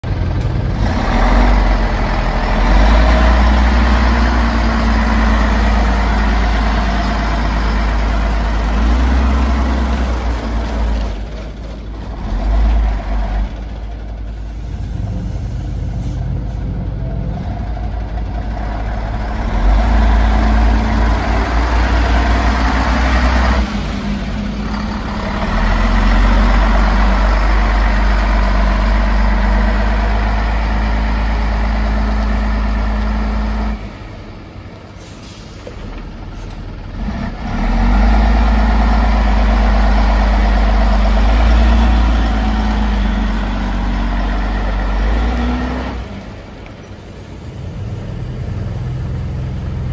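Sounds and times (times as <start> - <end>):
diesel engine revving: 0.0 - 49.9.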